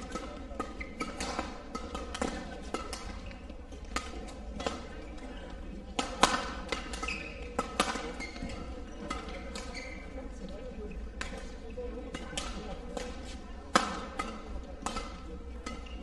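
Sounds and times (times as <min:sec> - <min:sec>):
rackets striking shuttlecock: 0:00.0 - 0:05.0, 0:05.9 - 0:10.0, 0:12.1 - 0:16.0
shoe squeaks: 0:00.8 - 0:01.2, 0:07.0 - 0:07.6, 0:08.2 - 0:10.2.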